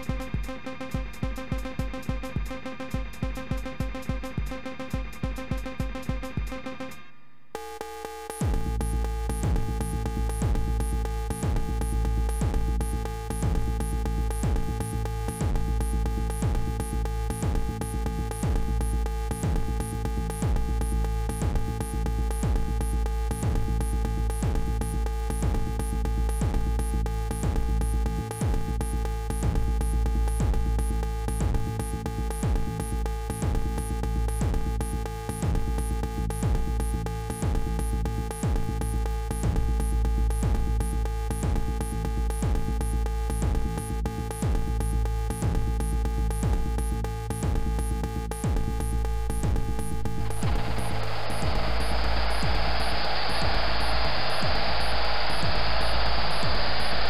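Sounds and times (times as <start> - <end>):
deep bass: 8.4 - 57.0
rapid high ticking: 47.8 - 57.0
falling-pitch kick hits: 48.5 - 57.0
held synth tones: 48.7 - 57.0.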